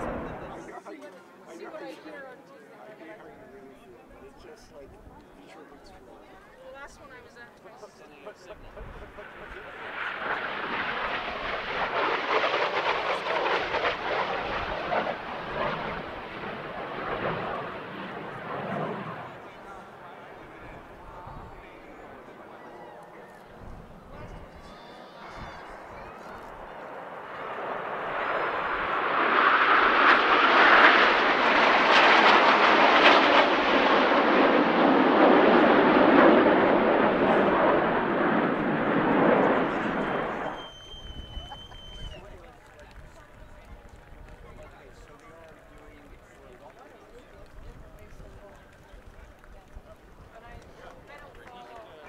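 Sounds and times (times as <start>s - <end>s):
jet roar: 0.0s - 0.8s, 8.5s - 46.3s.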